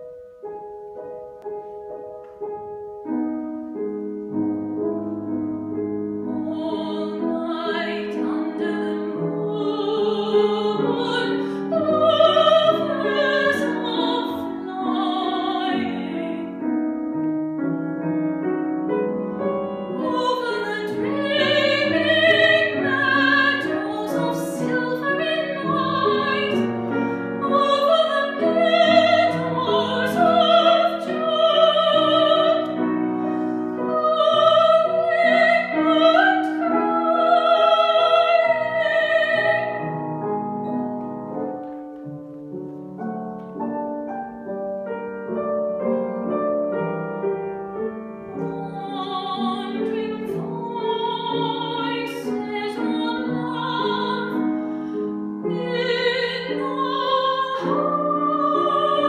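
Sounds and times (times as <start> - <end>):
grand piano playing: 0.0 - 59.0
woman singing with vibrato: 6.4 - 16.5, 19.7 - 32.8, 33.8 - 39.8, 48.4 - 54.5, 55.5 - 59.0.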